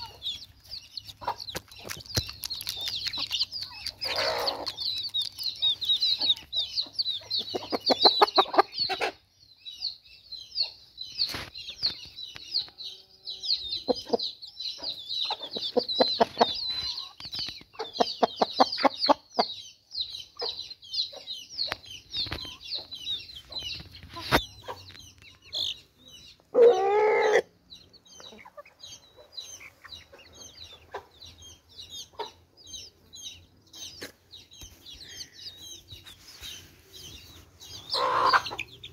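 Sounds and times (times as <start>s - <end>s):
chickens clucking: 0.0s - 38.9s
chicks peeping: 0.0s - 38.9s
chicken squawk: 3.2s - 4.8s, 26.5s - 27.6s, 37.9s - 38.7s.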